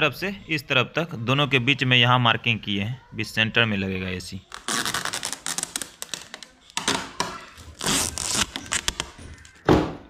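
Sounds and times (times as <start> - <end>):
plastic packaging crinkling: 4.5 - 9.6
tape peeling off plastic: 4.5 - 9.6.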